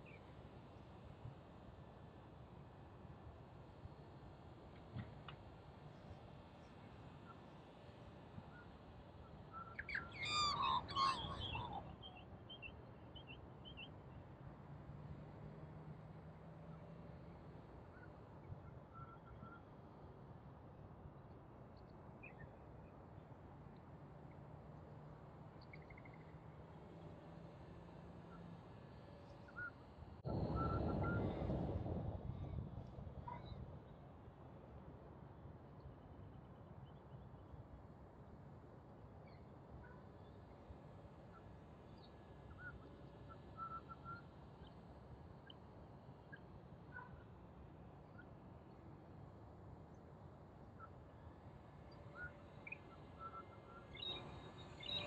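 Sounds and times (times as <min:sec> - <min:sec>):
magpie warbling call: 0:09.8 - 0:11.8
faint bird chirps: 0:17.9 - 0:19.8, 0:41.3 - 0:44.8, 0:51.9 - 0:55.0
wind buffeting on microphone: 0:30.2 - 0:33.1.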